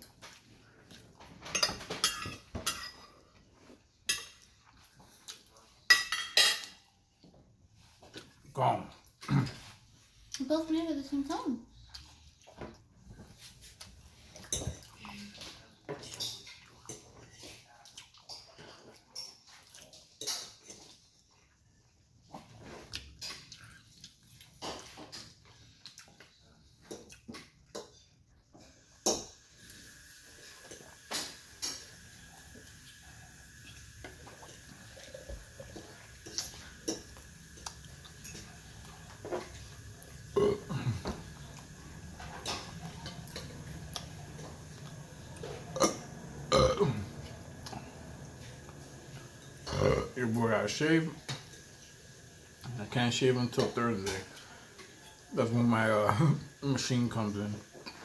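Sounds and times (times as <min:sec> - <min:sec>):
man burping loudly: 0:40.4 - 0:41.2, 0:45.8 - 0:47.1, 0:49.7 - 0:50.2.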